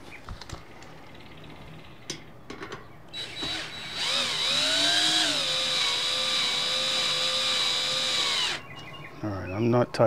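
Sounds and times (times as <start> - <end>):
power drill motor whine: 3.2 - 8.6.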